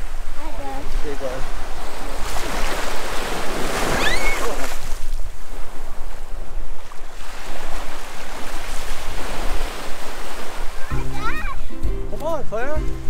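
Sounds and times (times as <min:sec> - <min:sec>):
surf washing up sand: 0:00.0 - 0:13.0
brief high squeal: 0:03.9 - 0:04.6.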